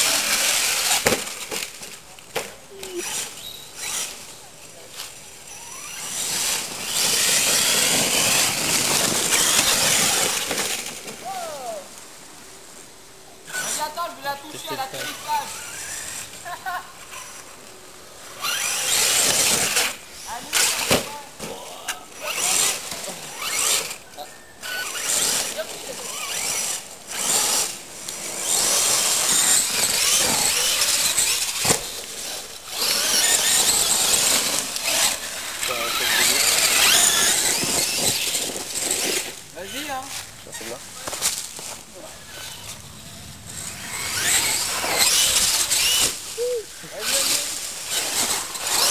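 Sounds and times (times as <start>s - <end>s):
toy truck motor whining: 0.0s - 4.4s, 5.0s - 11.8s, 13.4s - 17.6s, 18.2s - 48.9s
tyres churning dirt and leaves: 0.0s - 48.9s
short falling whines: 40.2s - 48.9s.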